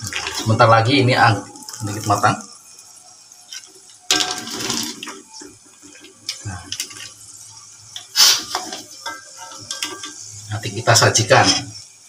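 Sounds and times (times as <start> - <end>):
broth splashing and pouring: 0.0 - 11.8
ladle stirring broth in pot: 7.9 - 10.2.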